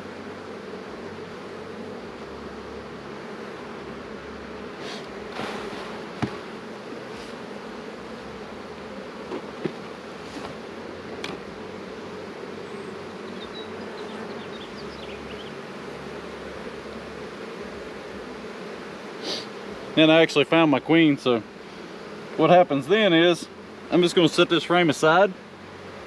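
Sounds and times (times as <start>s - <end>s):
honeybee colony buzzing: 0.0s - 26.0s
hive tool knocking on wood: 4.9s - 7.4s, 9.2s - 11.5s.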